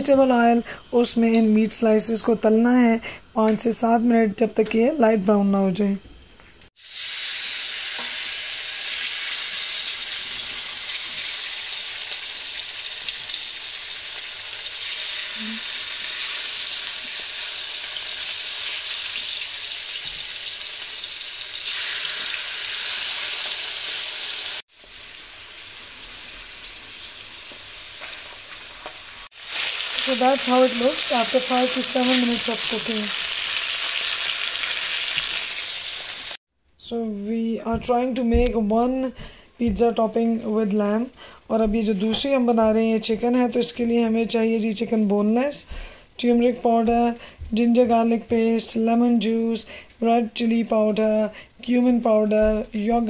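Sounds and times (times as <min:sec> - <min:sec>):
meat sizzling in hot oil: 0:06.8 - 0:36.4.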